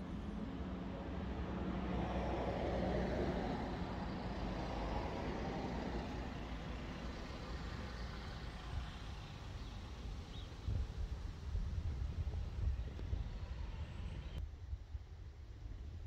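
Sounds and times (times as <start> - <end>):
road vehicle passing: 0.2 - 10.3.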